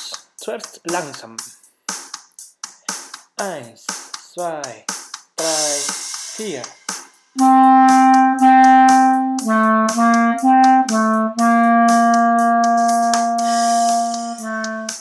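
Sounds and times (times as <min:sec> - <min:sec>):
steady ticking beat: 0:00.0 - 0:15.0
clarinet playing slow phrase: 0:07.4 - 0:15.0.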